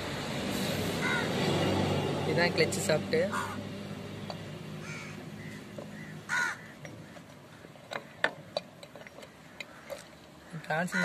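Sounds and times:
crow cawing: 0:01.0 - 0:01.4, 0:03.3 - 0:03.6, 0:04.8 - 0:08.2, 0:09.3 - 0:11.0.

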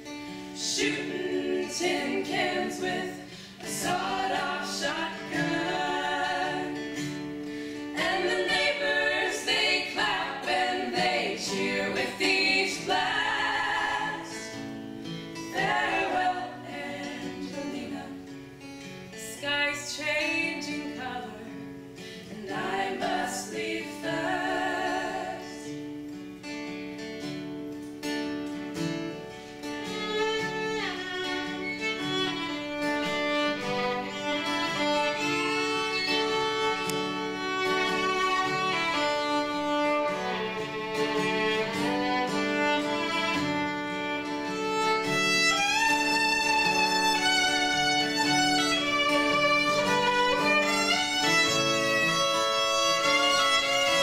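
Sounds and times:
fiddle: 0:00.0 - 0:17.9, 0:27.0 - 0:54.0
acoustic guitar: 0:00.0 - 0:54.0
women singing in harmony: 0:00.4 - 0:07.2, 0:07.9 - 0:14.7, 0:15.5 - 0:18.3, 0:19.2 - 0:25.8.

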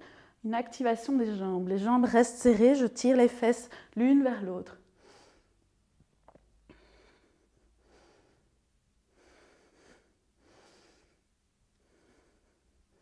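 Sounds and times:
woman breathing softly: 0:00.0 - 0:00.4, 0:03.7 - 0:04.0, 0:06.6 - 0:13.0.

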